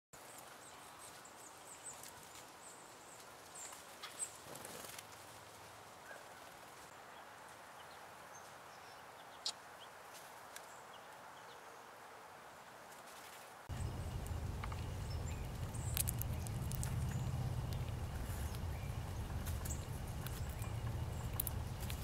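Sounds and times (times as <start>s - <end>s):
sharp clicks: 13.7s - 22.0s.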